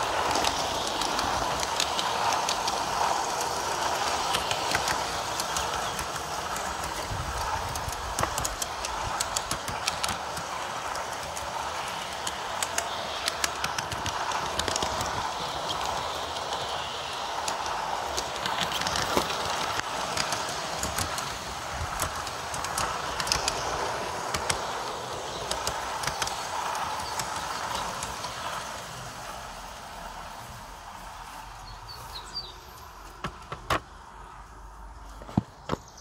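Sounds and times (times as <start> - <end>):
model train wheels rumbling: 0.0 - 36.0
sharp clicks: 0.2 - 16.8, 17.4 - 28.4.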